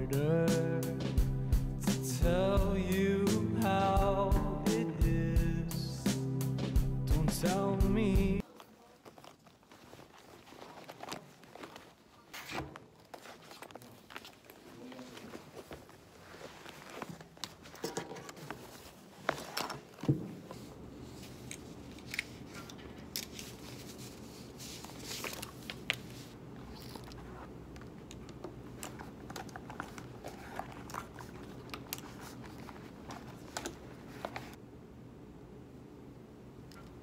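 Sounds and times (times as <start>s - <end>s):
canvas bag rustling: 8.4s - 21.3s, 29.6s - 34.6s
paper sheets shuffled: 8.4s - 28.0s, 28.7s - 34.6s.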